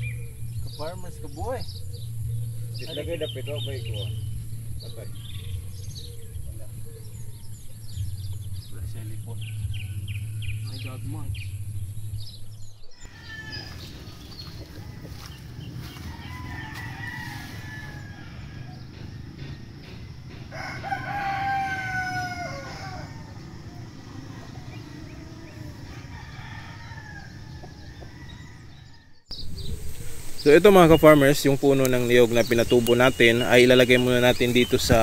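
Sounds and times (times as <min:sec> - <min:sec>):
steady low hum: 0:00.0 - 0:13.0, 0:17.4 - 0:35.0
rooster crowing: 0:12.9 - 0:29.4.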